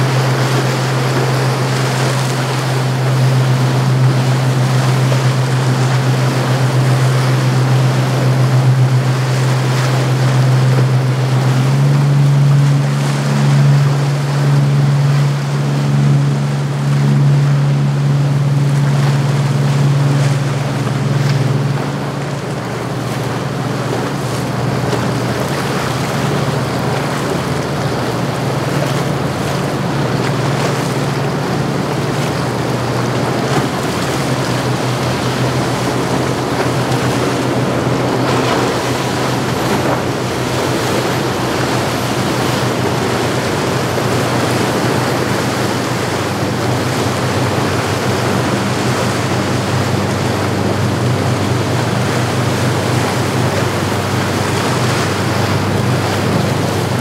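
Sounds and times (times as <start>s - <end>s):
boat engines droning: 0.0s - 57.0s
rush of wake and surf: 0.0s - 57.0s
wind on microphone: 12.6s - 57.0s.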